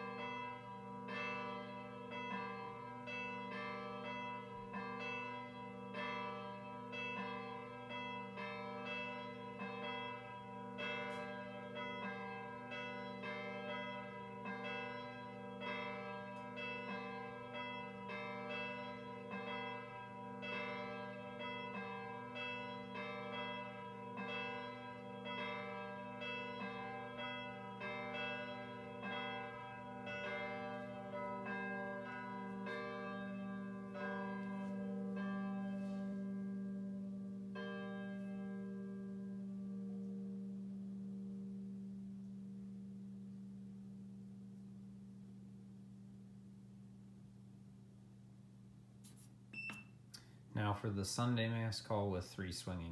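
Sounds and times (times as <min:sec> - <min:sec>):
bells pealing: 0:00.0 - 0:40.7.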